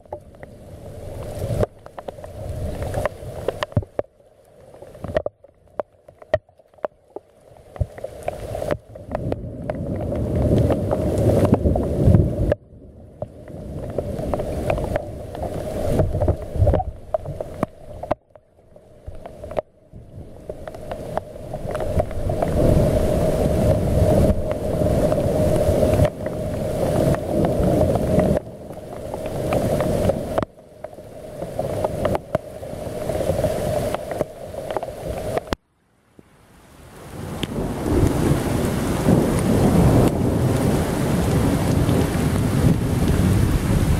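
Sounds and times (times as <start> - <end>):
wind on microphone: 0.0 - 4.0, 7.8 - 18.2, 19.2 - 35.6, 37.1 - 43.9
rain hissing: 0.0 - 35.6, 36.4 - 43.9
rolling thunder: 37.5 - 43.9.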